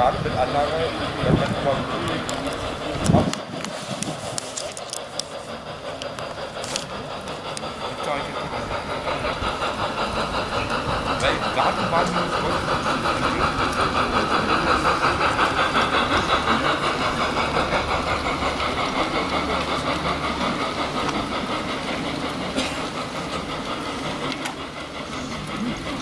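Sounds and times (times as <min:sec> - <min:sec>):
model train rhythmic whine: 0:00.0 - 0:26.0.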